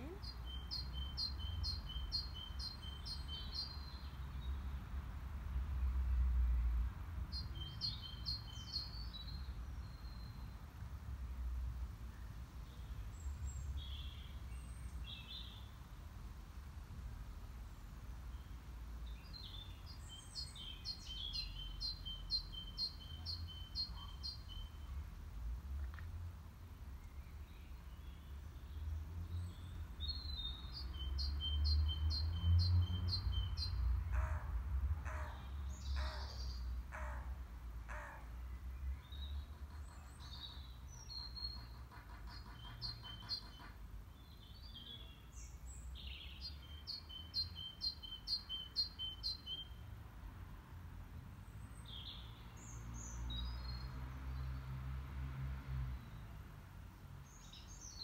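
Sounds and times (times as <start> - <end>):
harsh bird calls: 33.1 - 37.3, 39.6 - 43.8.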